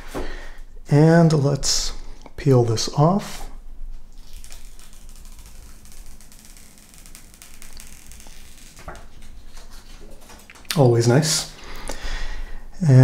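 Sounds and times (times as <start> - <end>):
paper wrap peeling off glass: 4.1 - 10.7.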